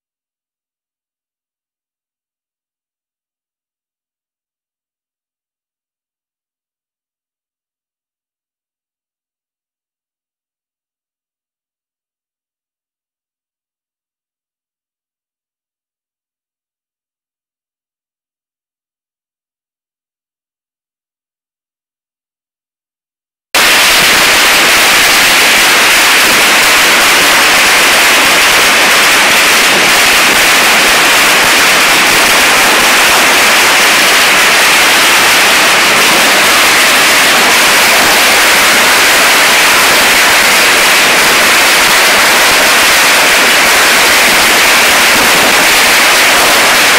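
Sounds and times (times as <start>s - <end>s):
loud static hiss: 23.6s - 46.9s.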